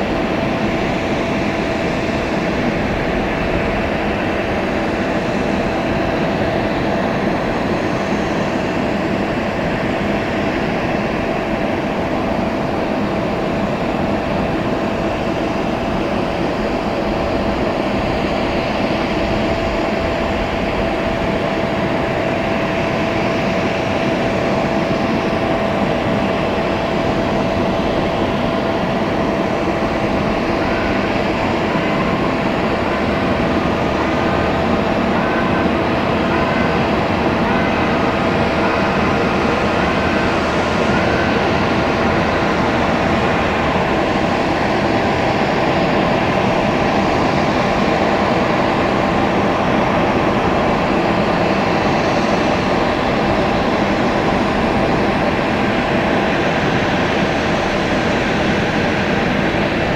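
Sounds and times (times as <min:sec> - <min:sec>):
airliner machinery drone: 0:00.0 - 0:59.9
constant whine: 0:00.0 - 0:59.9.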